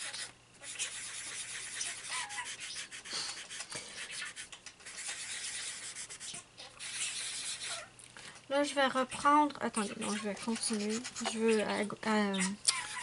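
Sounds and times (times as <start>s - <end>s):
pad rubbing on paper: 0.0s - 7.9s, 9.8s - 11.8s.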